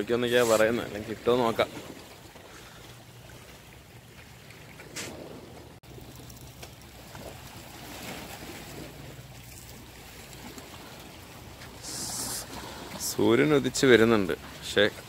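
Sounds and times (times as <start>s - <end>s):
water noise: 0.0s - 15.0s
wind: 0.0s - 15.0s.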